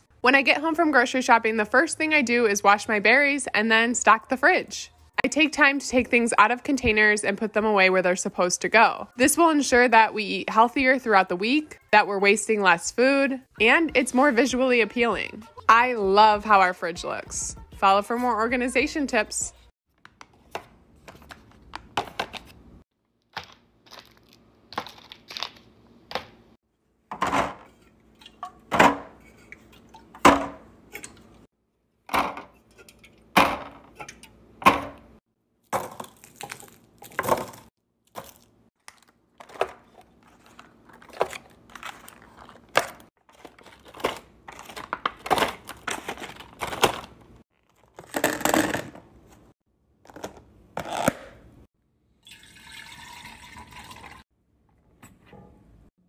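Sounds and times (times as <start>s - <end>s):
food packaging crinkling: 23.2s - 25.8s, 35.7s - 48.7s
plastic containers clacking: 39.4s - 49.0s.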